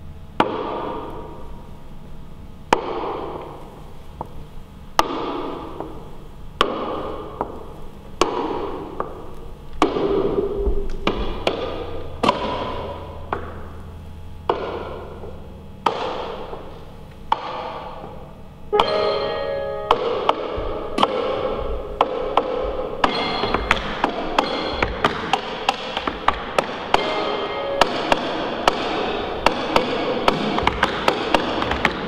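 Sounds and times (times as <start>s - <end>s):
cane tapping wooden floor with echo: 0.4s - 1.2s, 5.0s - 6.0s, 6.6s - 13.8s, 14.4s - 16.7s, 17.3s - 18.2s, 19.9s - 27.2s, 27.8s - 32.0s.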